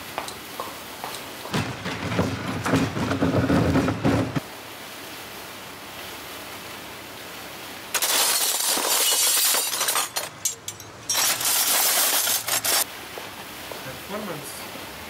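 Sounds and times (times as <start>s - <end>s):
low street background: 0.0s - 4.4s
metal cutlery clattering: 8.0s - 12.8s.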